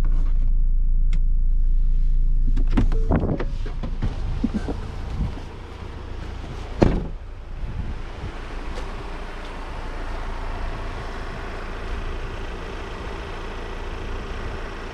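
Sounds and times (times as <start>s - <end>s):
diesel engine rumbling: 0.0s - 14.9s
sharp thump: 6.8s - 7.2s.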